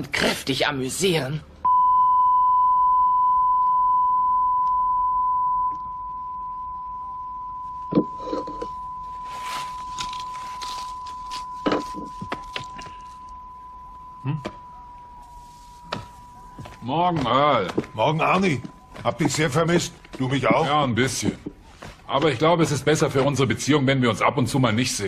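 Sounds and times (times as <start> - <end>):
steady test tone beep: 1.6 - 20.6
rustling: 8.1 - 13.3.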